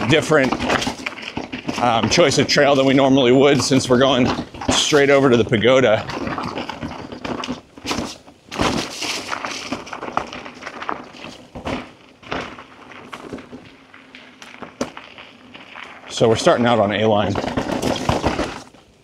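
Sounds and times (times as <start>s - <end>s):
bike knocking and rattling: 0.0s - 19.0s
bike tyres on dirt trail: 0.0s - 19.0s.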